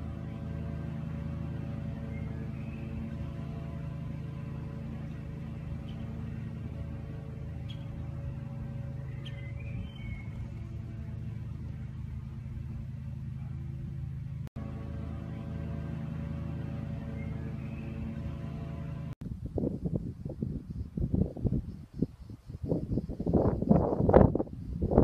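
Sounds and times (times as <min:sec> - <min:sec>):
ambient music drone: 0:00.0 - 0:19.2.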